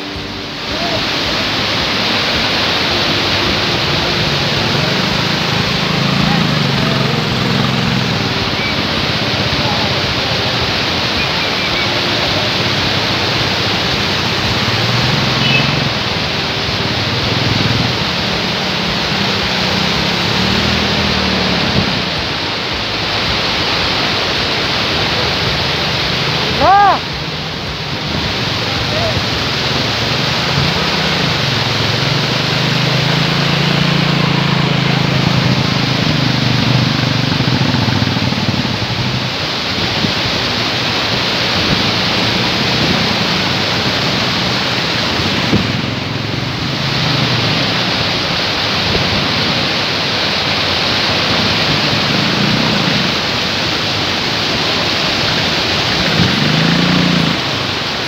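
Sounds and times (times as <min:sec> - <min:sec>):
motorcycle engine revving: 0:00.0 - 0:58.0
wind rushing over microphone: 0:37.4 - 0:49.9.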